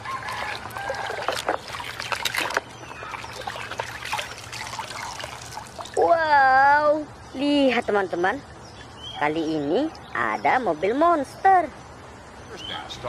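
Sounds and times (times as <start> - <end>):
hand scrubbing toy in water: 0.0 - 6.0
water trickling off toy: 0.0 - 6.0.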